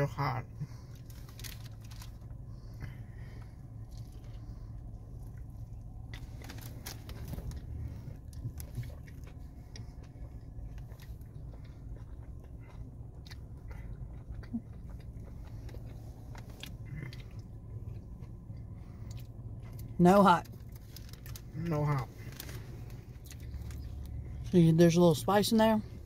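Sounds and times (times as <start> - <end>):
person chewing crispy food: 0.0 - 24.8
steady low hum: 0.0 - 26.0.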